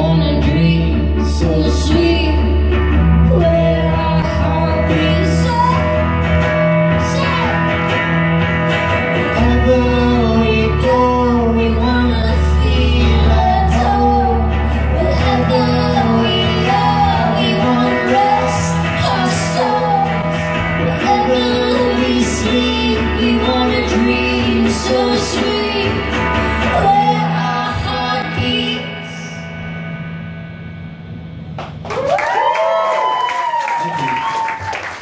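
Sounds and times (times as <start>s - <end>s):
woman singing: 0.0s - 7.6s, 9.2s - 29.4s
guitar playing: 0.0s - 31.9s.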